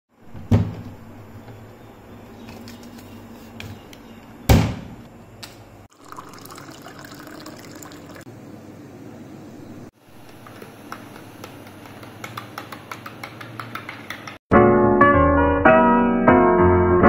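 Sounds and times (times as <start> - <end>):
wooden cabinet door knocks: 0.3 - 1.0, 4.5 - 5.0
tap water filling a glass: 5.9 - 8.2.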